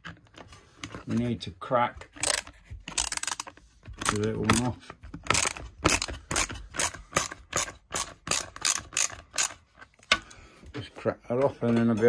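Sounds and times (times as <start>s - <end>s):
ratchet clicking: 3.0s - 4.2s, 5.3s - 9.6s.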